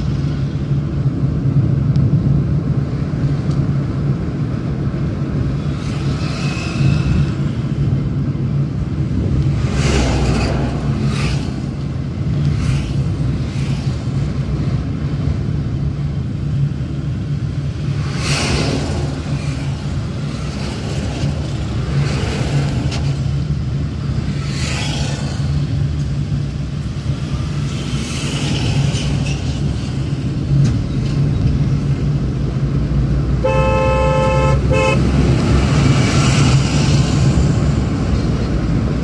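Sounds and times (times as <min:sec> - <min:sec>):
car engine and road drone: 0:00.0 - 0:39.0
wind and tyre noise: 0:00.0 - 0:39.0
vehicle horn: 0:33.4 - 0:35.1.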